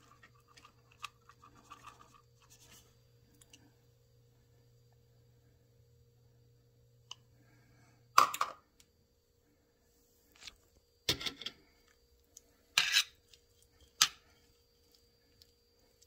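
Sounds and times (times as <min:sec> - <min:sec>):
metal spoon scraping a pan: 0:12.7 - 0:13.2.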